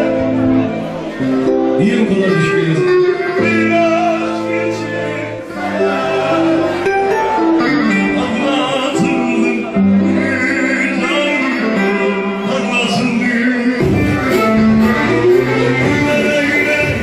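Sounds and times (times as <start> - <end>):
live band playing melody: 0.0 - 17.0.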